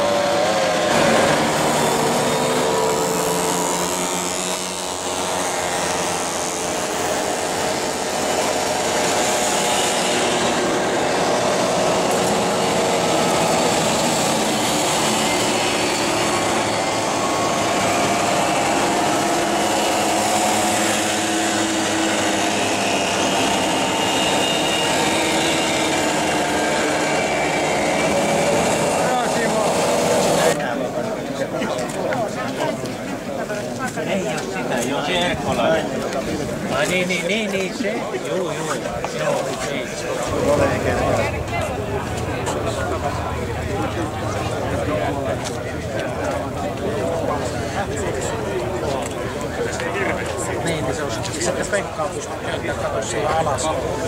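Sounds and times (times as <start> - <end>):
mopeds buzzing past: 0.0 - 30.6.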